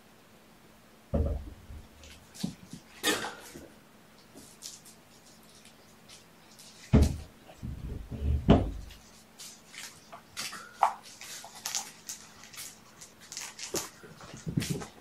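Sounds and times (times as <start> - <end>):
heavy deep thumps: 1.1 - 2.0, 6.9 - 8.9.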